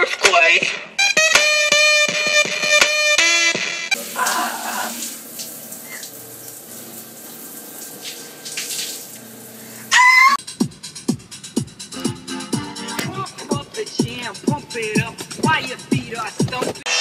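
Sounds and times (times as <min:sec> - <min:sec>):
shower spray hissing on tile: 0:04.0 - 0:09.9.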